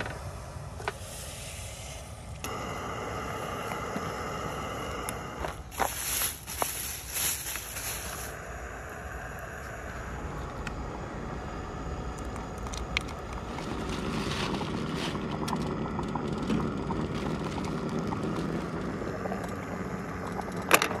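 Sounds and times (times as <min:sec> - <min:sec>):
camp stove roaring: 0:00.0 - 0:21.0.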